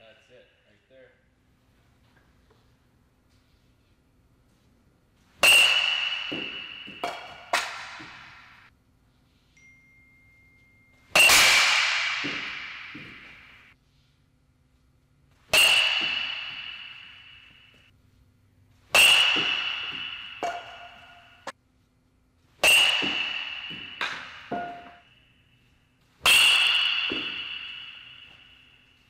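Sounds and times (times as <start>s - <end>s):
metal bat pinging balls: 5.2s - 8.7s, 9.8s - 13.8s, 15.2s - 21.6s, 22.5s - 29.0s.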